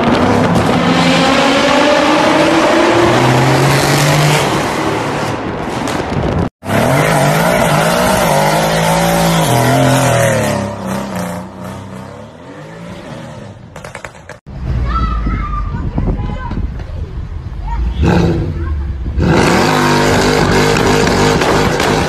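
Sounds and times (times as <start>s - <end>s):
car engine at full throttle: 19.0s - 22.0s.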